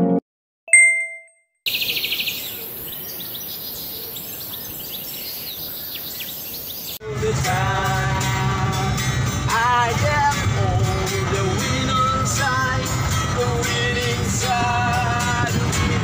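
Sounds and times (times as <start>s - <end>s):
short ringing tone: 0.7s - 1.4s
birds chirping: 1.7s - 7.0s.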